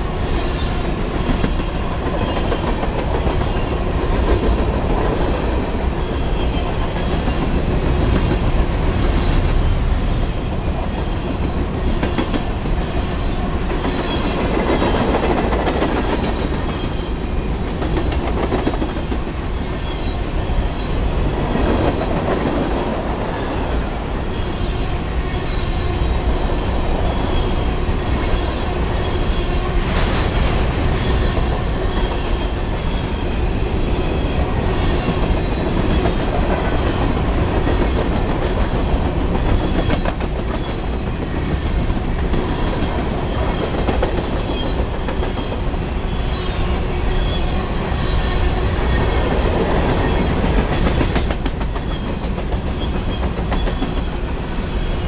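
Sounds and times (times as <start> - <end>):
train wheels rumbling on rail: 0.0 - 55.0
wheels clacking over rail joints: 0.9 - 20.2, 34.0 - 47.1, 48.1 - 54.6.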